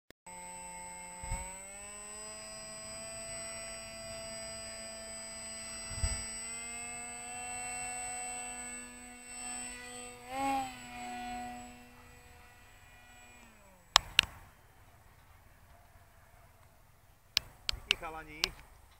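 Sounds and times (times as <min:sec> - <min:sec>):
electric motor and propeller whining: 0:00.3 - 0:18.9
sharp clicks: 0:13.4 - 0:16.0, 0:17.3 - 0:18.9.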